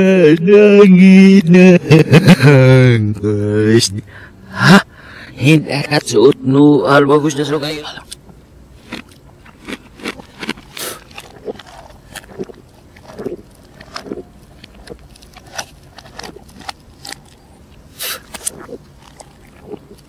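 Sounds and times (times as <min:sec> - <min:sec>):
person gulping a drink: 0:08.9 - 0:17.2, 0:18.0 - 0:20.0.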